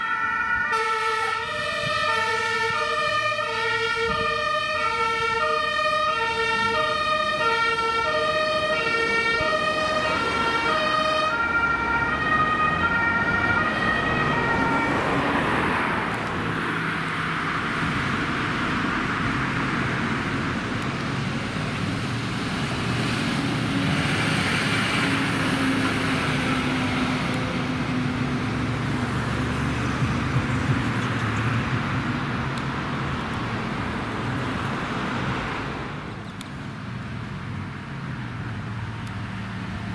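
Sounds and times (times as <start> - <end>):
two-tone emergency siren: 0.0 - 16.2
fire engine rumble: 0.0 - 39.9
road traffic noise: 0.0 - 39.9.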